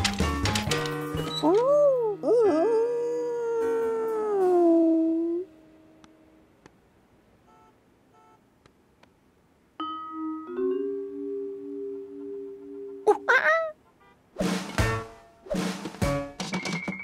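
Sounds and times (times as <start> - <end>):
cartoon music: 10.8 - 13.8.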